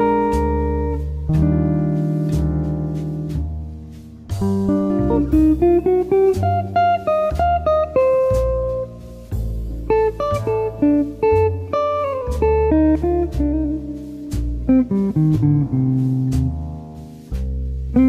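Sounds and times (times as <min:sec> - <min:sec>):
low bass line: 0:00.0 - 0:18.0
plucked guitar tune: 0:00.0 - 0:18.0.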